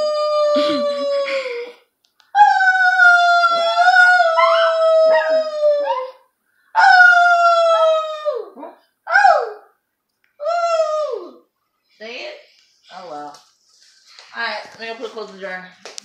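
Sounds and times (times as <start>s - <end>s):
woman howling: 0.0s - 1.6s, 2.4s - 6.1s, 6.8s - 9.7s, 10.4s - 11.4s
dog howling: 2.4s - 6.2s, 6.8s - 9.7s.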